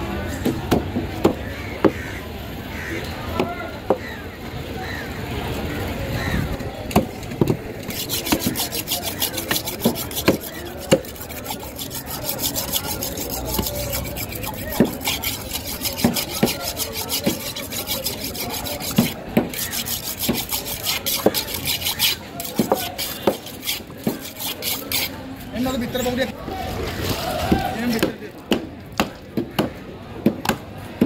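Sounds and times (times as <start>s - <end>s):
knife scraping fish scales: 7.2s - 26.2s.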